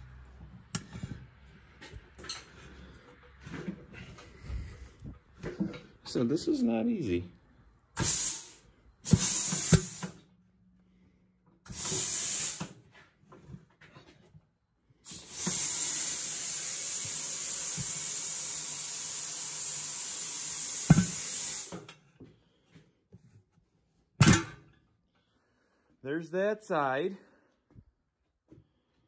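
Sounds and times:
compressed air hissing: 8.0 - 10.2, 11.7 - 12.8, 15.1 - 21.9
metal clanks: 24.2 - 24.7.

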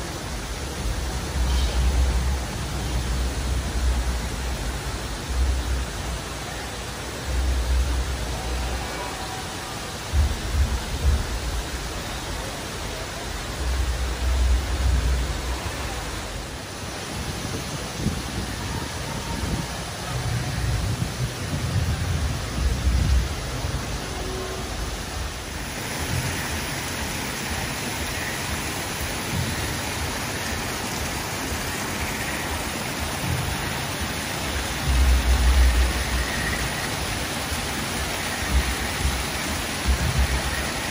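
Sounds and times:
waterfall splashing into pool: 0.0 - 40.9
wind buffeting microphone: 17.0 - 27.1.

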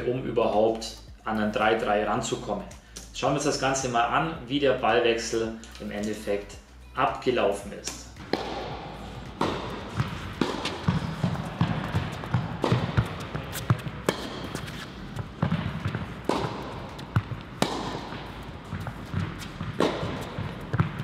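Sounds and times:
racket strikes: 7.8 - 21.0
tennis ball bounces: 7.8 - 21.0
footsteps on court: 8.1 - 21.0.

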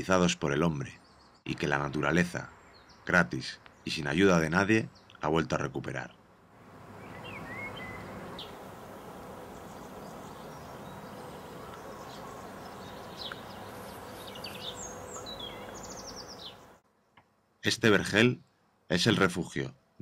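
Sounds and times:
songbirds chirping: 0.0 - 20.0
bees buzzing: 6.6 - 16.8.

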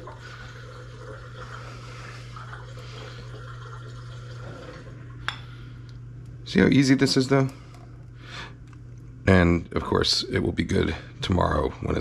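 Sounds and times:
soup sloshing and pouring: 0.0 - 5.1
steady low hum: 0.0 - 12.0.

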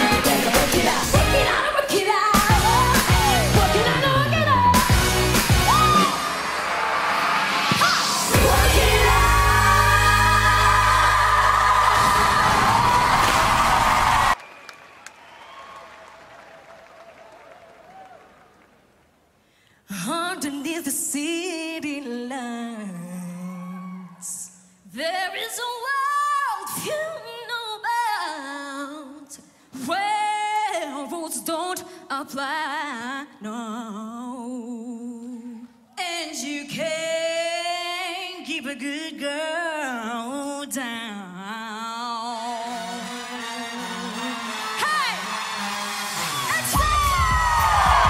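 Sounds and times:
women singing a cappella: 0.6 - 5.0, 8.3 - 12.6, 19.9 - 44.3.

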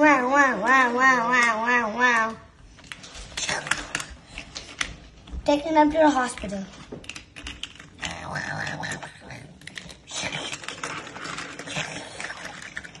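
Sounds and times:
toy cars clattering on wooden floor: 0.2 - 13.0.

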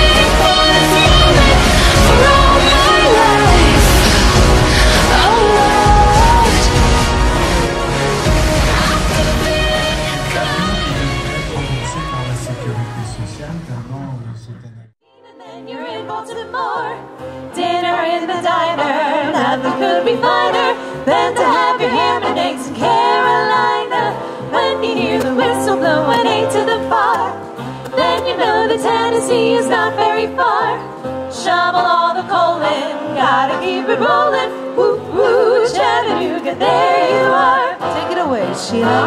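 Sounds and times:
female vocal trio singing in harmony: 0.0 - 12.8, 15.2 - 39.0
musical accompaniment with bass line: 0.0 - 14.6.

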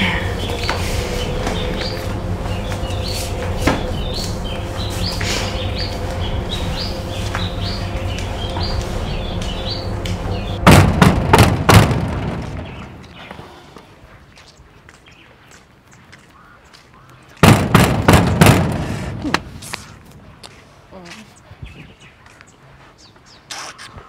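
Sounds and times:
low steady hum: 0.0 - 13.3
birds chirping: 0.0 - 24.0.

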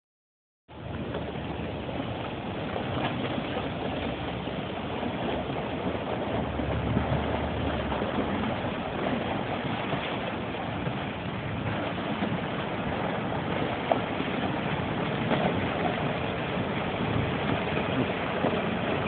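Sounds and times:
boat engine droning: 0.7 - 19.0
constant rushing noise: 0.7 - 19.0.

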